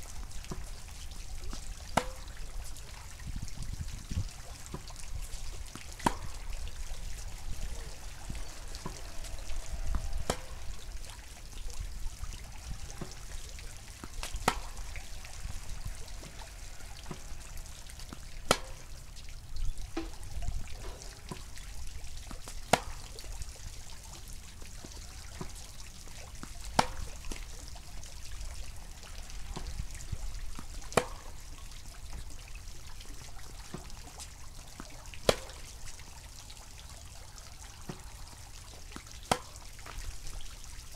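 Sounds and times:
low steady rumble: 0.0s - 34.5s
tennis ball racket pops: 6.0s - 6.3s, 9.9s - 10.6s, 14.1s - 14.8s, 18.5s - 18.8s, 22.4s - 23.1s, 31.0s - 31.3s, 35.2s - 35.6s, 39.3s - 39.6s.

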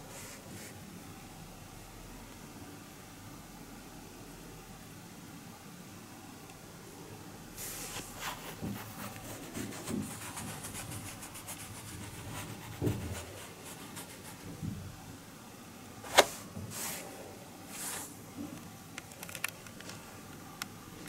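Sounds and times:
cloth rubbing on a mat: 7.6s - 14.6s, 16.0s - 18.2s.

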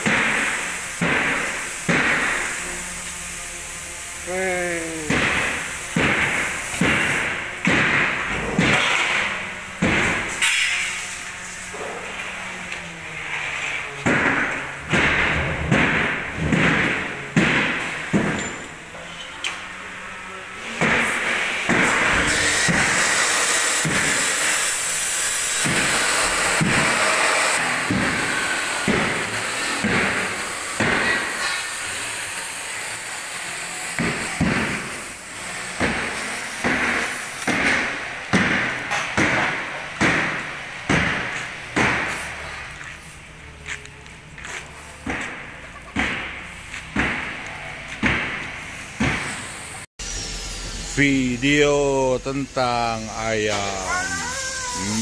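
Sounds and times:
sharp knocks: 5.1s - 10.6s, 14.0s - 18.6s, 25.6s - 31.6s, 35.8s - 42.2s, 45.0s - 47.4s, 48.0s - 49.4s.

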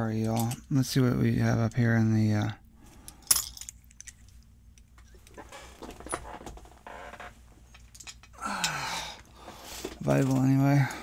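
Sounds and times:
metal parts clicking: 0.2s - 0.7s, 3.1s - 5.4s
handling noise: 3.1s - 8.3s.

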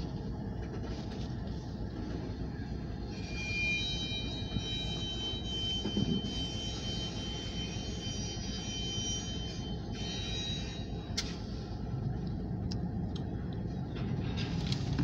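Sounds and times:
high-pitched multi-tone whine: 3.0s - 11.2s.

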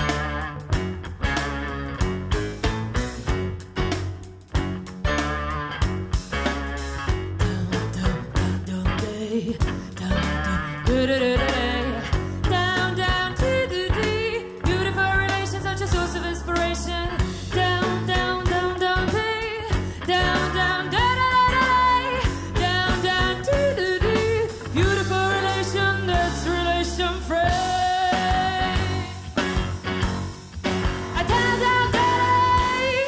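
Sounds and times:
bass line: 0.0s - 33.0s
drums: 0.0s - 33.0s
electric guitar: 0.0s - 33.0s
woman singing: 7.4s - 29.4s, 31.1s - 33.0s.

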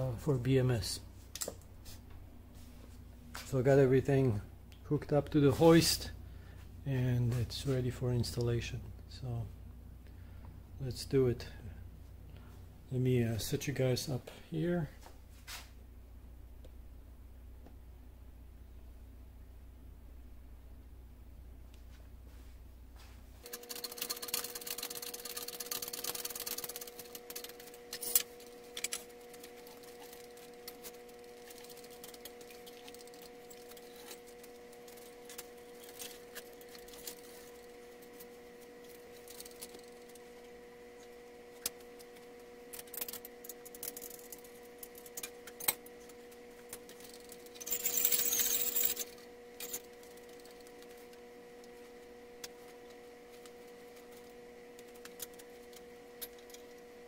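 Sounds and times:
faint steady hum: 0.0s - 57.0s
metal clinks and knocks: 47.0s - 49.8s
chains rattling: 47.2s - 49.8s.

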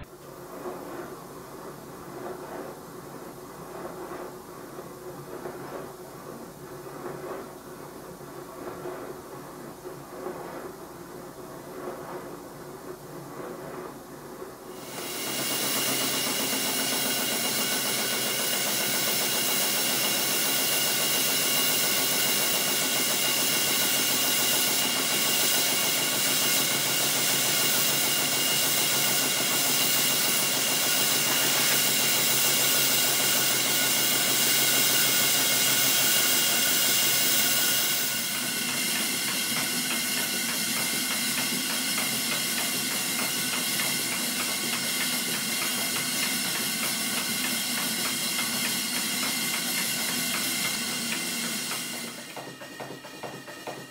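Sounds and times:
fast exhaust beat: 14.7s - 53.9s
steam engine hissing: 14.7s - 53.9s.

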